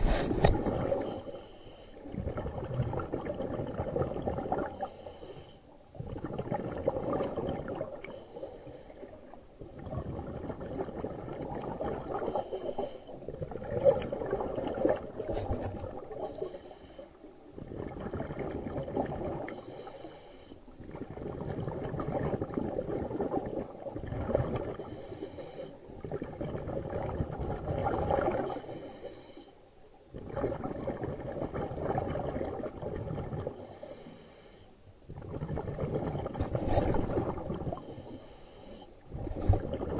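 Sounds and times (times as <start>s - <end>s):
bubbly underwater exhales: 0.0s - 1.2s, 2.1s - 4.9s, 5.9s - 8.2s, 9.0s - 16.4s, 17.5s - 19.6s, 20.8s - 25.0s, 25.9s - 28.6s, 30.1s - 33.7s, 35.1s - 38.0s, 39.1s - 39.9s
hissing regulator inhales: 16.2s - 17.2s, 19.6s - 20.6s, 24.9s - 25.8s, 28.5s - 29.6s, 33.6s - 34.8s, 37.8s - 39.0s.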